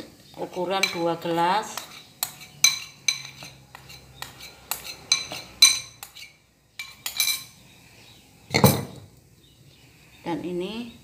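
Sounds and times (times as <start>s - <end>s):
metal spoon clinking on ceramic bowl: 0.7s - 7.6s.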